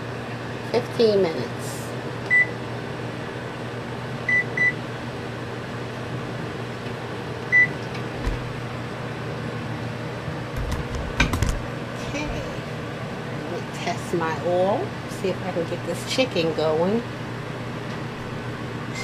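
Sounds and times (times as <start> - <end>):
microwave oven humming: 0.0 - 19.0
oven control panel beeps: 2.3 - 2.6, 4.3 - 4.8, 7.5 - 7.8.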